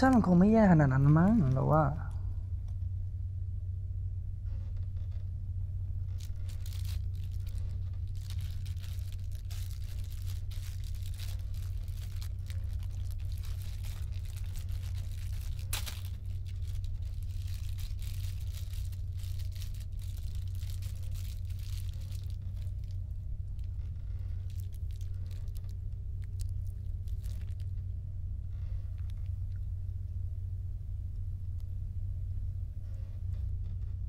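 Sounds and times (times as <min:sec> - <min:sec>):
steady low hum: 0:00.0 - 0:34.0
plastic wrapper crinkling: 0:06.0 - 0:27.9
sharp wrapper tear: 0:06.1 - 0:27.8.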